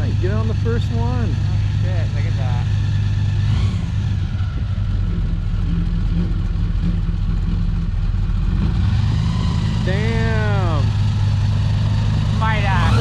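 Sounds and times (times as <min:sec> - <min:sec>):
airboat engine and propeller running: 0:09.7 - 0:13.0.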